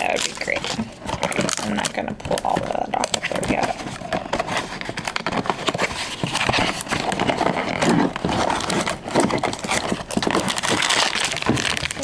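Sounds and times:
cardboard box being torn open: 5.1 - 12.0.

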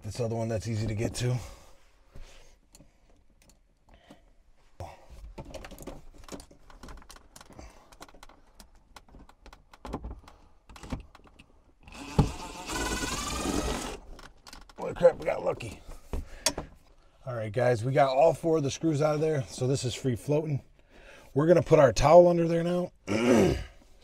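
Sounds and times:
tool and screws clicking and rattling: 5.3 - 14.8
cordless drill whining: 11.9 - 14.2.

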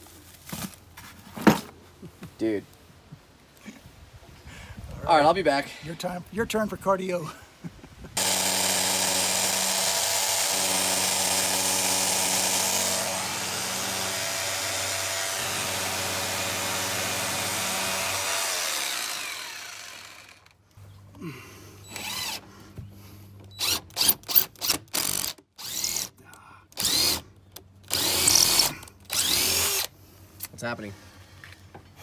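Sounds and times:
power drill boring into brick: 8.2 - 20.5, 21.9 - 22.4, 23.5 - 26.1, 26.8 - 27.2, 27.9 - 29.9.

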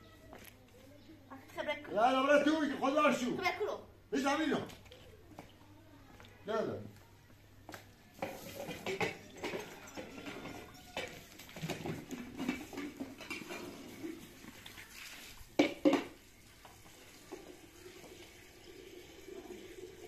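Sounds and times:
containers clattering: 8.2 - 14.7, 15.5 - 19.9
water running into a bowl: 8.2 - 20.0.

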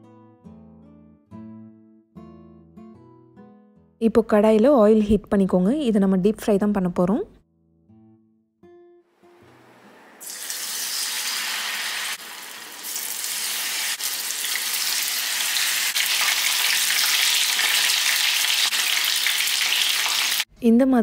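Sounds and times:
food sizzling in hot oil: 10.2 - 20.5.

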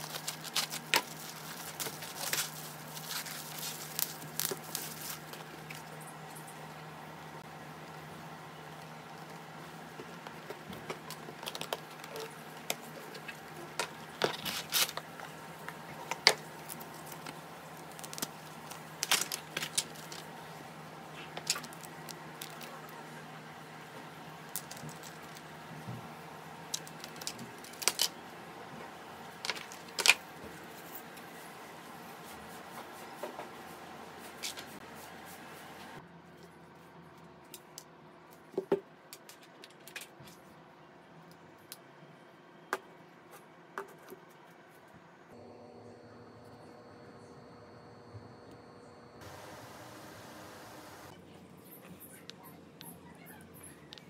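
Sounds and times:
packaging clicks and rustles: 0.0 - 5.9, 9.2 - 20.3, 26.7 - 28.2
steady hum: 45.0 - 52.0.

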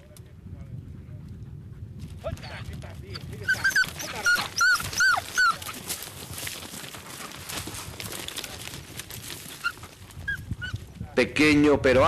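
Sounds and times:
dogs yelping: 2.4 - 6.0, 9.5 - 10.8
rustling through dry grass: 4.8 - 11.0.

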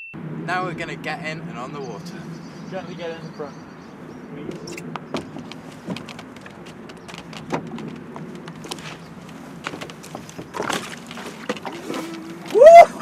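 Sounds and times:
knocks and scrapes on canoe: 4.5 - 12.5.

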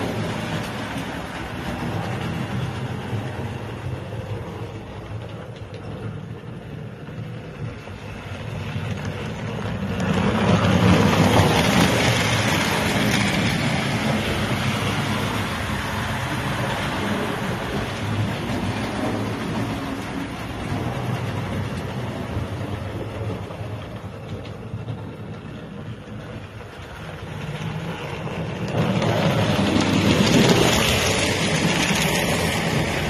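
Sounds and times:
model train running: 0.0 - 33.0.

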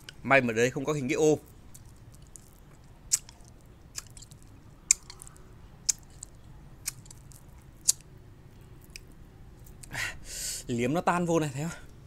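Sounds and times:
wet mouth clicks and smacks: 1.7 - 8.1.

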